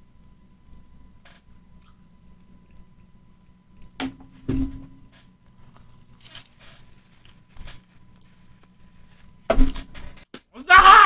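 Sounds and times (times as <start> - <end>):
quiet chewing: 5.4 - 8.8.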